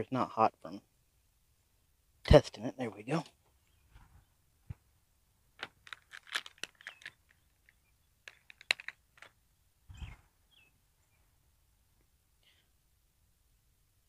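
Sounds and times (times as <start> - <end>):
plastic crinkling: 5.6 - 9.4.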